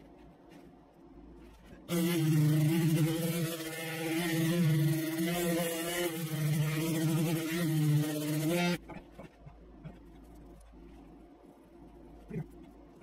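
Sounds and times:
electric grinder grinding: 0:01.9 - 0:08.8.

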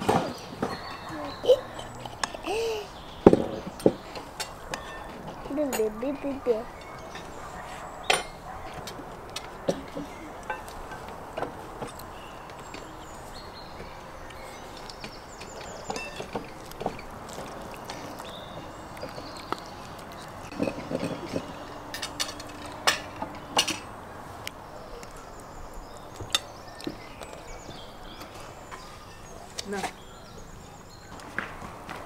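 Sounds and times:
cutlery clinking on ceramic plates: 0:03.2 - 0:11.9, 0:15.4 - 0:17.0, 0:20.5 - 0:24.0.

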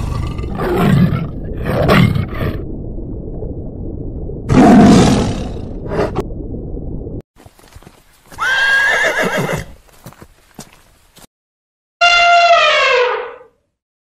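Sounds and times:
horse whinnying: 0:08.4 - 0:09.7.

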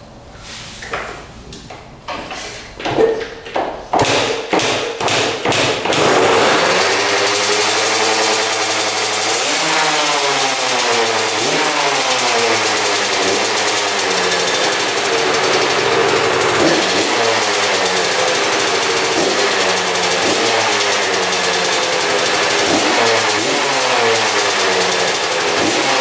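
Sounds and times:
dirt bike engine running: 0:05.9 - 0:26.0.

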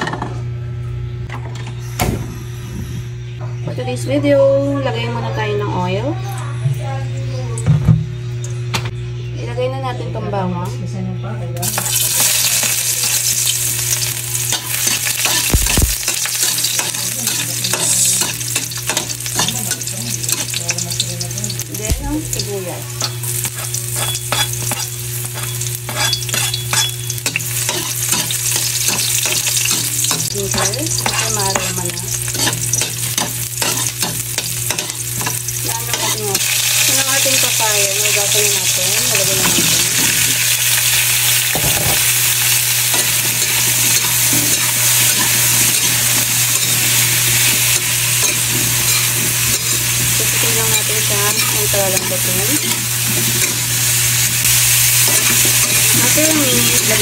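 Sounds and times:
metal utensil scraping a wok: 0:11.6 - 0:21.0, 0:23.0 - 0:39.9, 0:42.8 - 0:57.0
food sizzling in hot oil: 0:11.6 - 0:57.0.

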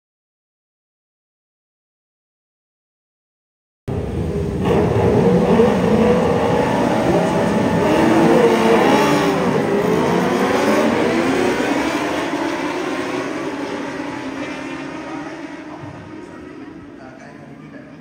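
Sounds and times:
motorcycle engines revving: 0:03.9 - 0:18.0.

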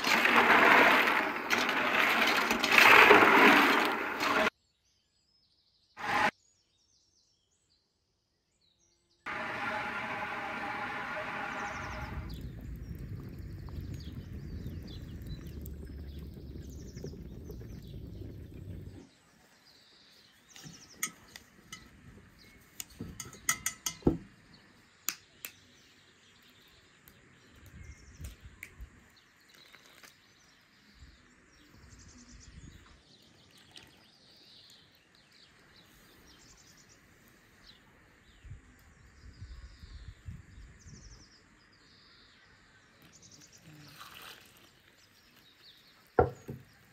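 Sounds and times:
wood fire burning: 0:00.0 - 0:04.5, 0:09.3 - 0:19.1
birds chirping: 0:11.3 - 0:43.9.

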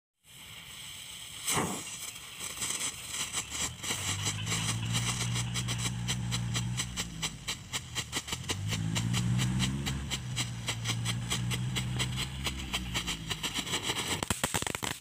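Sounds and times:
firework hissing and crackling: 0:00.2 - 0:15.0
firework whoosh: 0:00.2 - 0:15.0
steady low hum: 0:03.7 - 0:14.1.

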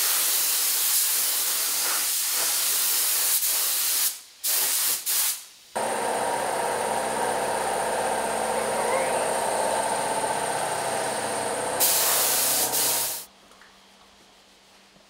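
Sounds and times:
paint spray gun hissing: 0:00.0 - 0:13.3
steady machine hum: 0:05.8 - 0:13.3.

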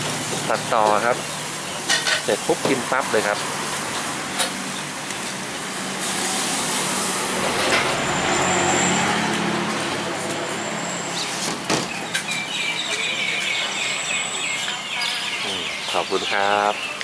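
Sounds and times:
street noise: 0:00.0 - 0:17.0
vehicle engine passing: 0:02.7 - 0:12.5.

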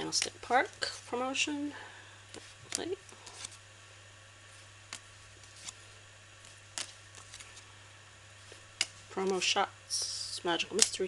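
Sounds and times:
faint steady hum: 0:00.0 - 0:11.0
playing cards clicking and snapping: 0:04.9 - 0:05.8, 0:06.4 - 0:07.6.

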